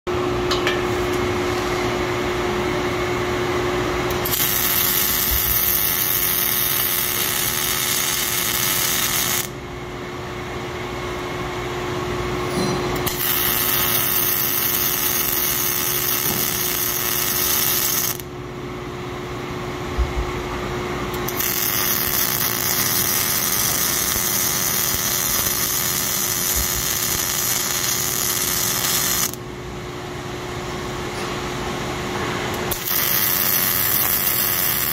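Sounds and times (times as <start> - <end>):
steady hum: 0.1 - 34.9
welding arc hiss: 4.1 - 9.6, 13.0 - 18.3, 21.2 - 29.4, 32.6 - 34.9.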